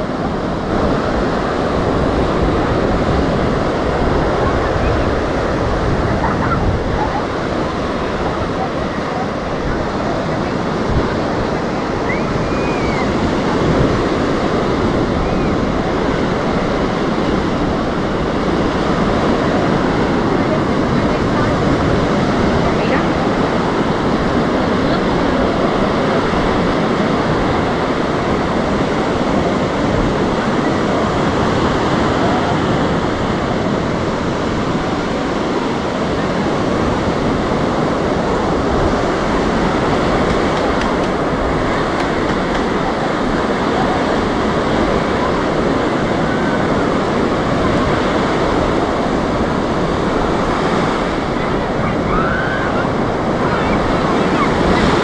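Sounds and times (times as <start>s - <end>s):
waves washing onto beach: 0.0s - 55.0s.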